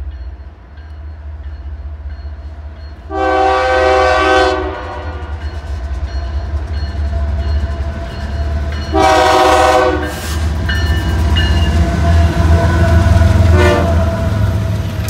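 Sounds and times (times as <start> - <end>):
locomotive air horn blast: 3.1 - 5.3, 8.9 - 10.4, 12.5 - 14.2.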